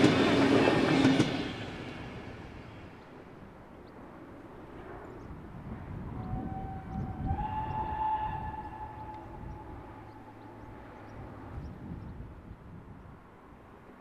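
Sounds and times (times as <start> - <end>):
steam whistle blast: 6.3 - 10.1.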